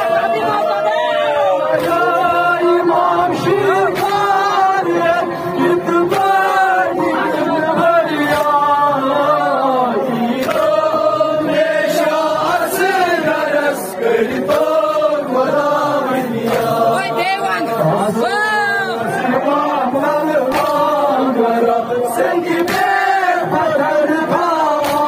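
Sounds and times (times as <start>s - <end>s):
crowd chanting along: 0.0s - 25.0s
men chanting over loudspeaker: 0.0s - 25.0s
hands slapping chests: 1.7s - 3.0s, 3.8s - 5.2s, 6.0s - 6.5s, 8.1s - 8.7s, 10.3s - 11.0s, 14.3s - 15.6s, 16.4s - 16.8s, 20.4s - 21.7s, 22.4s - 23.5s, 24.4s - 25.0s.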